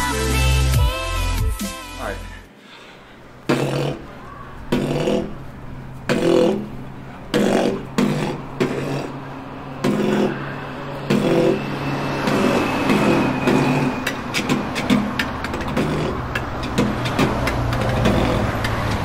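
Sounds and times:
beatboxing vocal drum hits: 0:03.5 - 0:04.0, 0:04.7 - 0:05.4, 0:06.1 - 0:06.7, 0:13.5 - 0:19.0
buzz with high whistle: 0:10.1 - 0:15.2.

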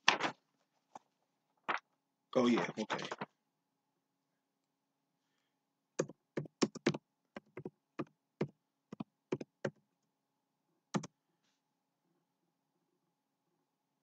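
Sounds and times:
keyboard typing: 0:06.0 - 0:09.8, 0:10.9 - 0:11.1.

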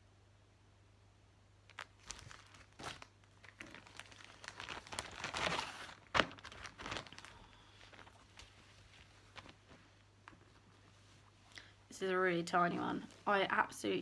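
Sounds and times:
plastic sleeve crinkling: 0:01.6 - 0:11.6.

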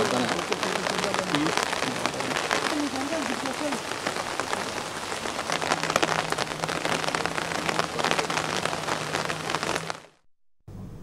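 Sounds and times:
heavy rain pouring: 0:00.0 - 0:10.2.

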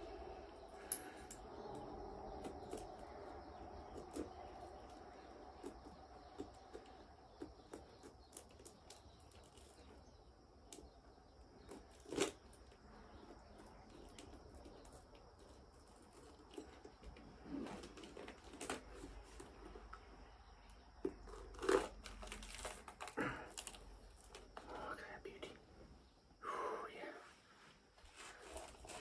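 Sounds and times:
husk cracking: 0:00.0 - 0:24.9, 0:28.0 - 0:29.0
knife cutting fruit husk: 0:01.0 - 0:20.0, 0:20.6 - 0:24.5
husk tearing apart: 0:01.7 - 0:20.2, 0:20.9 - 0:24.8, 0:28.1 - 0:29.0.

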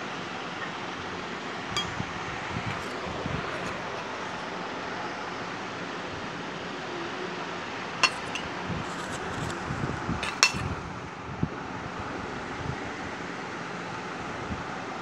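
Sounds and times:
metal spoon clinking on bowl: 0:01.8 - 0:02.0, 0:08.0 - 0:08.5, 0:10.2 - 0:10.7.

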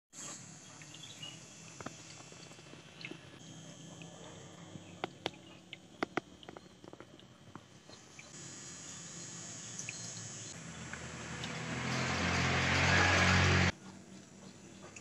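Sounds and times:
water trickling: 0:00.2 - 0:08.4
sharp water drips: 0:00.3 - 0:08.4, 0:09.7 - 0:15.0.

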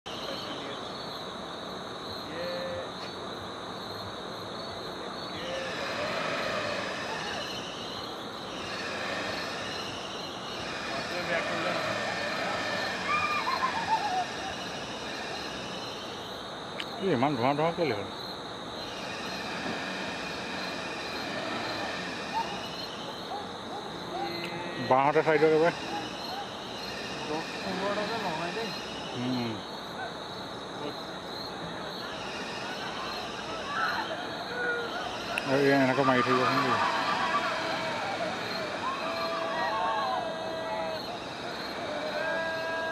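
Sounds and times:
crickets trilling: 0:00.1 - 0:42.9
short rising calls: 0:05.3 - 0:17.1, 0:18.8 - 0:30.0, 0:31.9 - 0:42.9
steady rumbling noise: 0:18.7 - 0:23.7, 0:34.3 - 0:42.9.

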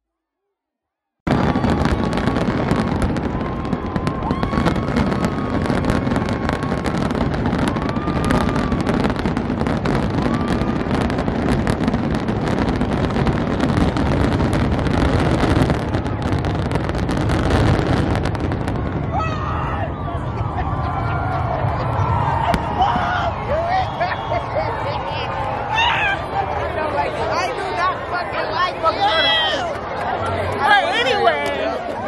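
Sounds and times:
fireworks crackling and bursting: 0:01.3 - 0:25.6.

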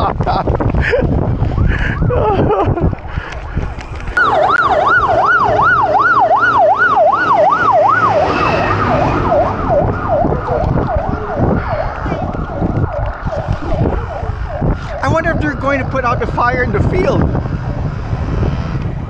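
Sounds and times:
fire truck siren yelping: 0:03.8 - 0:16.0.

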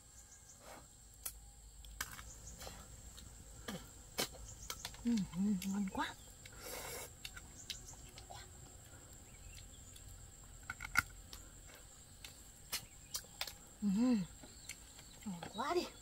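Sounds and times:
high insect whine: 0:00.0 - 0:16.0.

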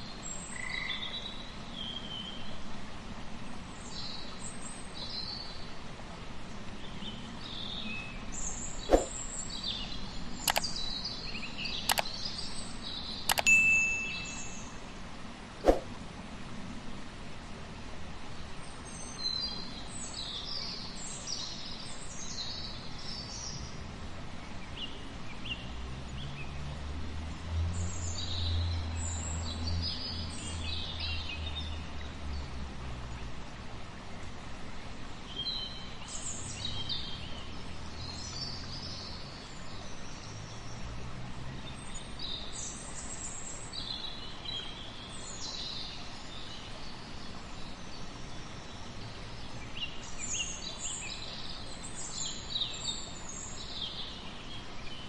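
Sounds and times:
steady background hiss: 0:00.0 - 0:55.0
sharp clicks: 0:10.4 - 0:10.7, 0:11.8 - 0:12.2, 0:13.3 - 0:13.6.

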